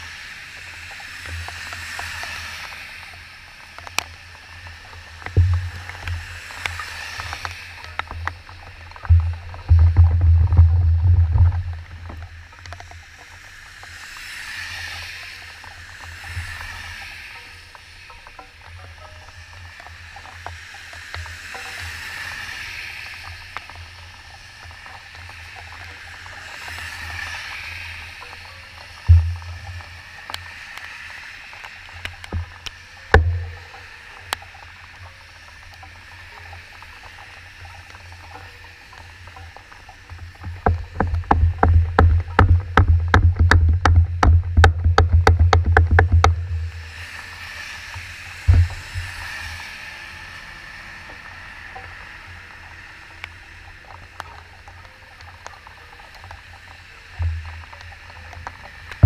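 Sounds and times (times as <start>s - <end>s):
tyres hissing on wet road: 0.0s - 44.0s, 44.9s - 59.0s
low steady rumble: 9.0s - 12.6s, 29.1s - 30.1s, 33.1s - 33.8s, 40.5s - 47.0s
sharp knocks: 40.6s - 46.7s.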